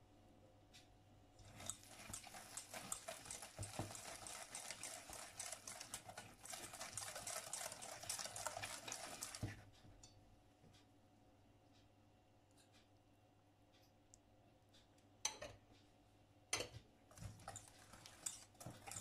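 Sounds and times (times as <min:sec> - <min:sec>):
whisk beating batter in a bowl: 0:01.4 - 0:09.7, 0:17.1 - 0:19.0.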